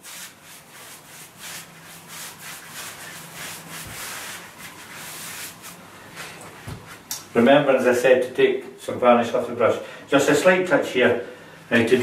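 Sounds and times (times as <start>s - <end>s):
paintbrush swishing on wood: 0.0s - 7.0s.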